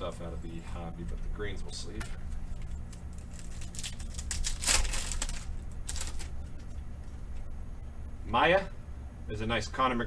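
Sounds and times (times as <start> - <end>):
steady low hum: 0.0 - 10.0
foil wrapper crinkling: 2.5 - 6.8.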